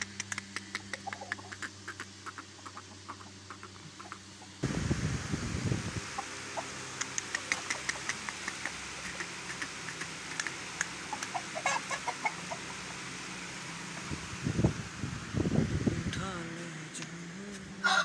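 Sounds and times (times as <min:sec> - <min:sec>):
chickens clucking: 0:00.0 - 0:04.6, 0:06.0 - 0:14.4.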